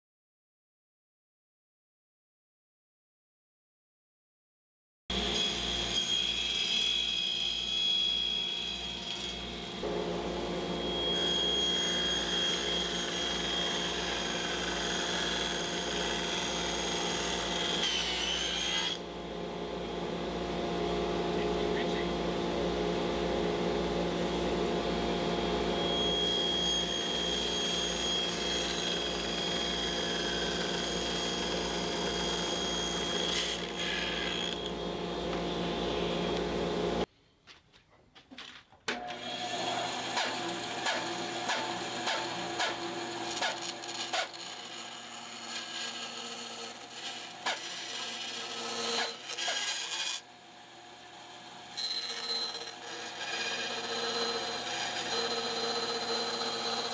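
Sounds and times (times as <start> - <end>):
band saw cutting plastic pipe: 5.1 - 19.1, 24.3 - 36.6, 38.9 - 56.9
table saw whining: 5.1 - 37.1, 38.9 - 56.9.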